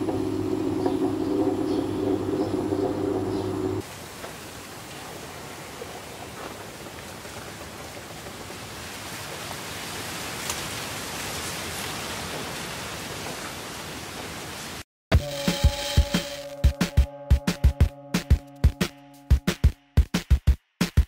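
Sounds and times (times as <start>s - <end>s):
outdoor ambient hiss: 3.8s - 14.8s.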